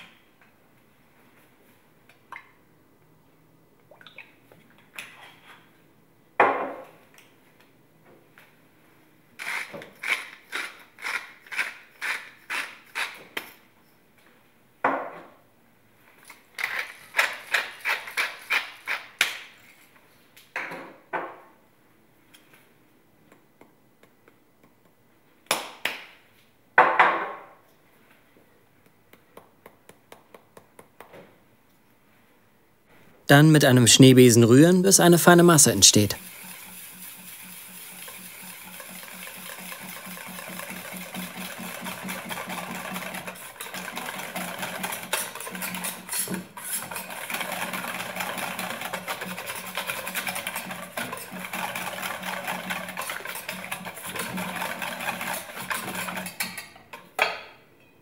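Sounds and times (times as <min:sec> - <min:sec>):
spice container shaking: 0:34.6 - 0:56.4.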